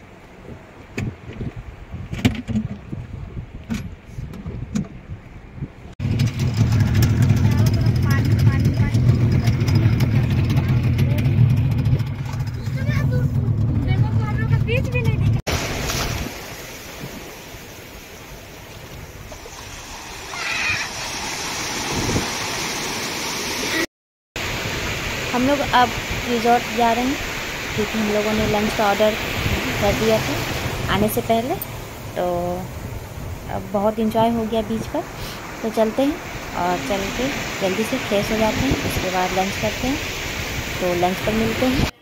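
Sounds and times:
hull thumping on waves: 0.0s - 23.8s, 24.4s - 42.0s
wind and water rumble: 0.0s - 42.0s
boat engine drone: 6.0s - 15.4s, 25.1s - 42.0s.

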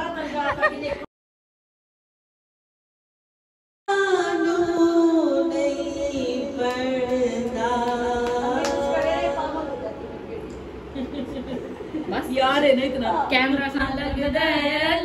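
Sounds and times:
woman singing unaccompanied: 3.9s - 10.4s, 12.9s - 15.0s.

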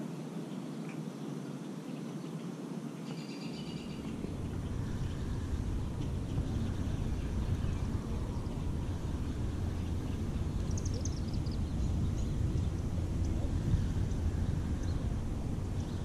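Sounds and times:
high bird chirps: 3.2s - 15.2s
wind buffeting microphone: 3.7s - 16.0s.

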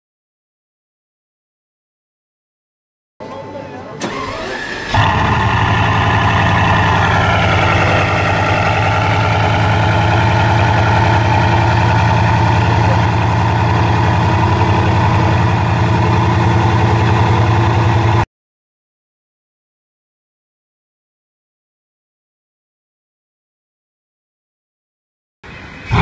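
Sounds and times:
car engine idling: 4.0s - 18.2s, 25.5s - 26.0s.

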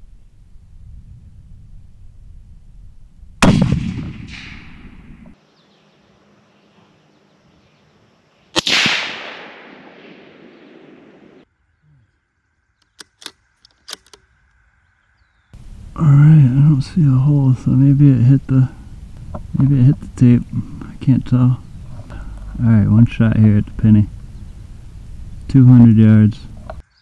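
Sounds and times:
rifle shots with echo: 3.4s - 5.3s, 8.6s - 11.4s
quick clicks: 12.8s - 14.3s.

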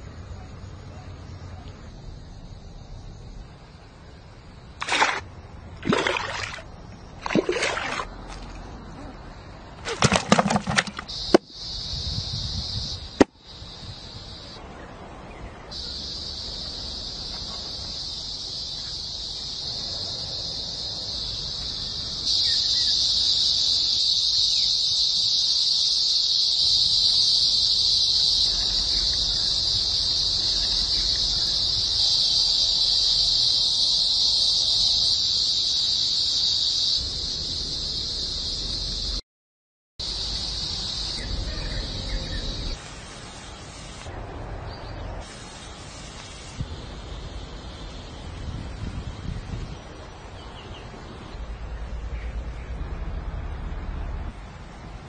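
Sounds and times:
hands splashing in water: 4.8s - 8.6s, 9.8s - 11.4s
high-pitched insect drone: 10.0s - 14.6s, 15.7s - 39.2s, 40.0s - 43.9s.

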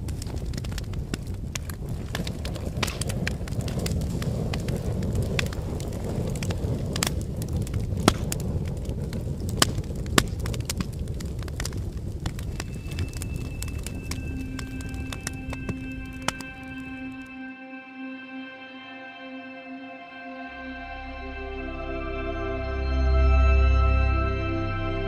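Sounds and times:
sharp pops of fire: 0.0s - 17.2s
campfire crackling: 0.0s - 17.3s.

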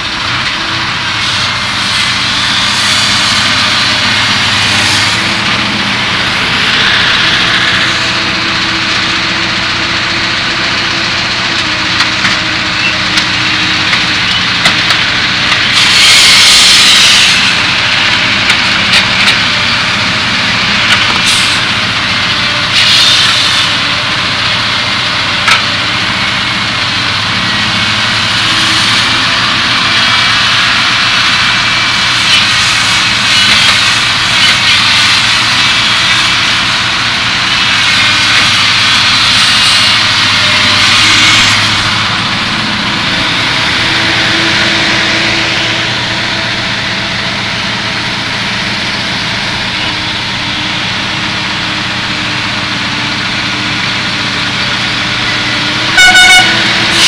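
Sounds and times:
diesel machinery engine drone: 0.0s - 57.0s
hiss and whine: 0.0s - 57.0s.

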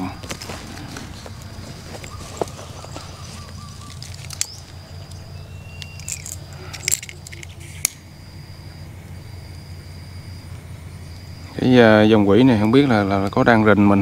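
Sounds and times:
faint high insect tone: 0.0s - 14.0s
steady low hum: 0.0s - 14.0s
clicks of small objects handled: 3.8s - 5.2s, 5.8s - 8.0s.

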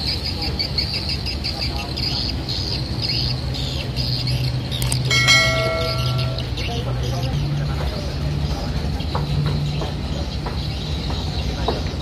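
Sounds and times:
outboard motors droning: 0.0s - 12.0s
high chirps: 4.9s - 6.7s
brief high tone: 5.1s - 6.5s.

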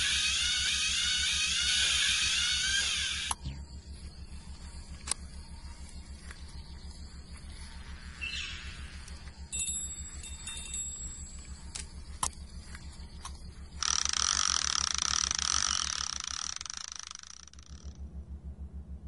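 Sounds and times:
loud hissing whir: 0.0s - 3.5s
low pulsing hum: 0.0s - 19.0s
faint high ringing: 3.3s - 13.9s.

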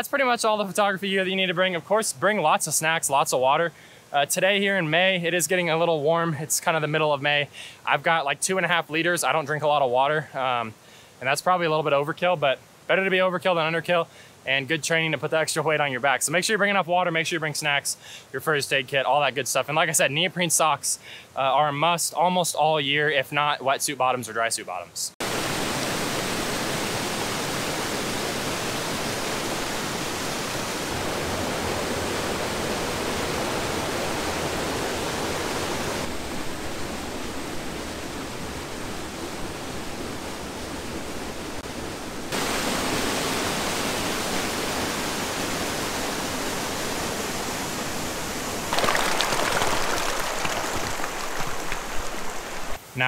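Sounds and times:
creek water rushing over rocks: 25.2s - 52.8s.

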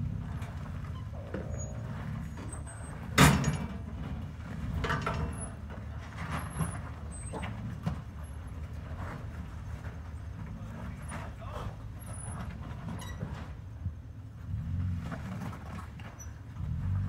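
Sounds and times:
knocks and clunks: 0.0s - 14.0s
truck engine low rumble: 0.0s - 17.0s.

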